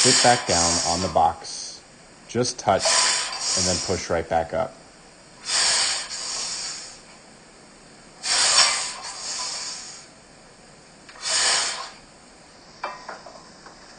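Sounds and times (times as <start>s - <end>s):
man breathing forcefully: 0.0s - 1.2s, 2.8s - 4.0s, 5.4s - 7.1s, 8.2s - 10.1s, 11.2s - 12.0s.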